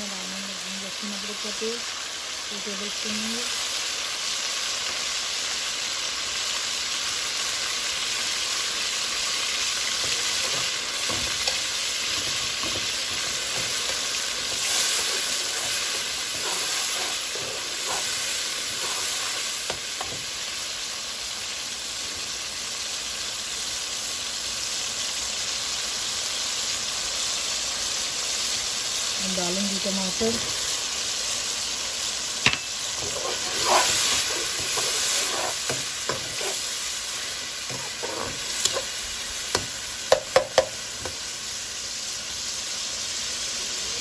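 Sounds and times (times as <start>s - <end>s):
onions sizzling in a pan: 0.0s - 44.0s
metal spatula scraping a pan: 9.9s - 20.3s, 32.5s - 39.7s.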